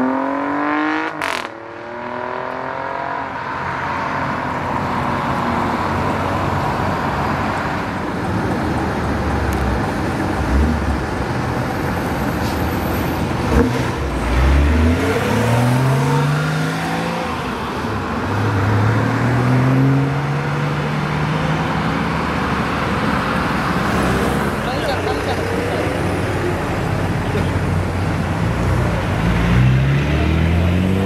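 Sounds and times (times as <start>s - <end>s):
traffic noise: 0.0s - 31.0s
car engine accelerating: 13.4s - 31.0s.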